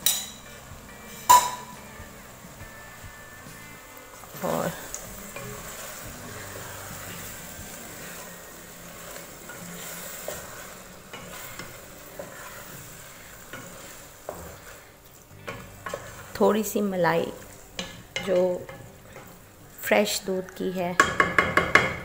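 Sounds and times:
oil sizzling: 0.0 - 22.0
wooden spatula scraping pot: 4.3 - 19.4.

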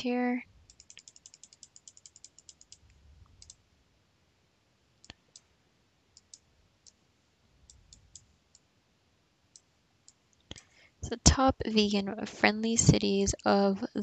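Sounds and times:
computer mouse clicks: 0.6 - 3.6, 6.1 - 7.0, 7.6 - 8.7.

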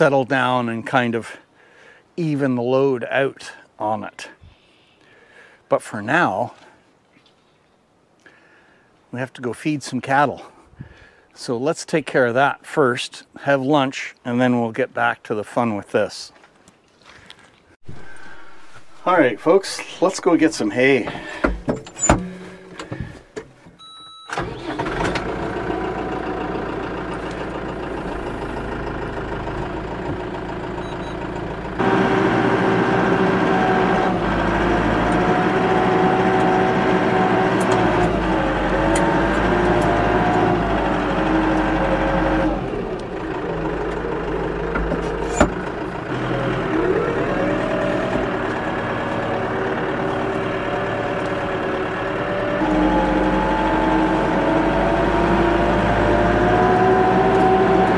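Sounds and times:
tractor engine: 17.8 - 57.9
short beep: 23.8 - 24.4, 30.8 - 31.2.

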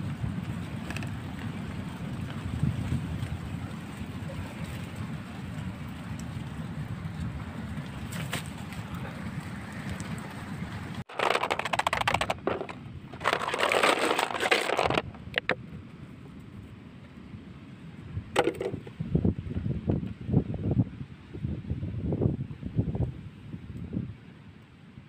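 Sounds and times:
shells clattering into plastic tub: 11.1 - 15.5
shells clicking and scuffling: 11.1 - 15.6.

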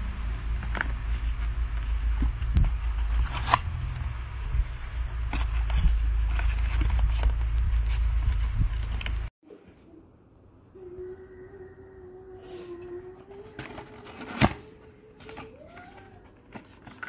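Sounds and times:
steady low rumble: 0.0 - 9.3.

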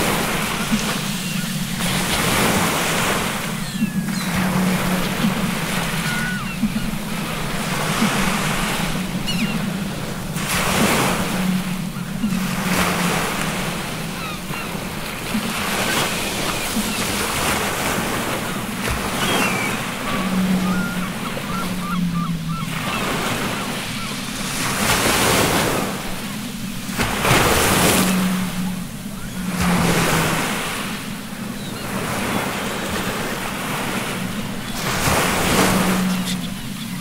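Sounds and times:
ocean surf waves: 0.0 - 37.0
seagull cries: 0.6 - 9.8, 10.5 - 25.8.

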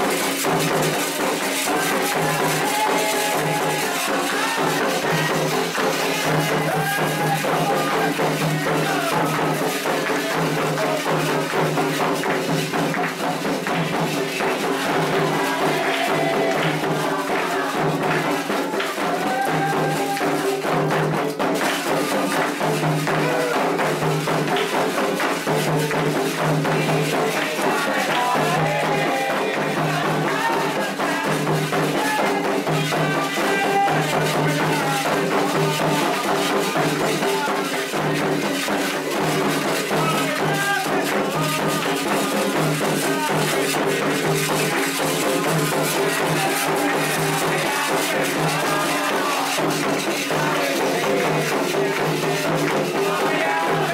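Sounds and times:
hand drums: 0.0 - 53.9
jingling percussion: 0.0 - 53.9
voices singing a chant: 0.0 - 53.9.

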